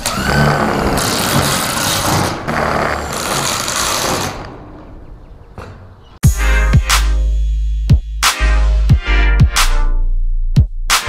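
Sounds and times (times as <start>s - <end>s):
drill boring into metal roofing: 0.0s - 4.5s
loud music with heavy beat: 6.2s - 9.9s, 10.5s - 11.0s.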